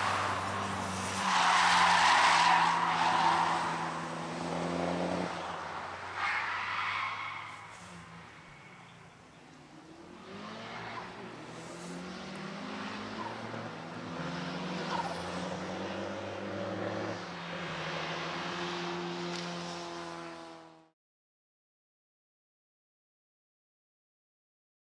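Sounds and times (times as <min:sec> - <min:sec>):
car engine revving hard: 0:02.8 - 0:05.4, 0:10.1 - 0:17.2.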